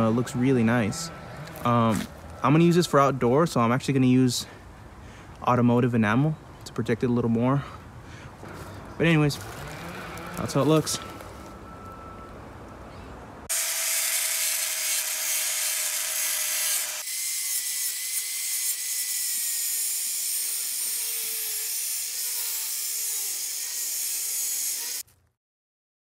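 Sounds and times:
angle grinder cutting metal sign: 13.5 - 25.0.

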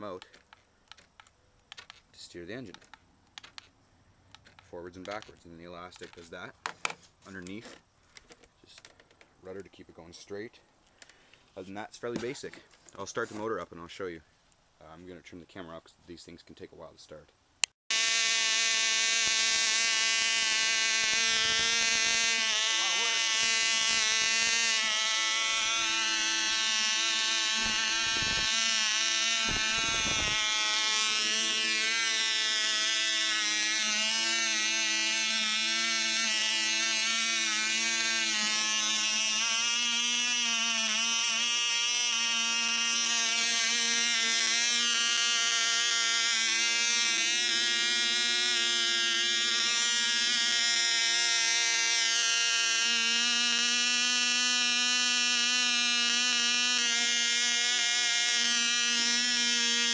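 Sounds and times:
model engine buzzing whine: 17.9 - 59.9.

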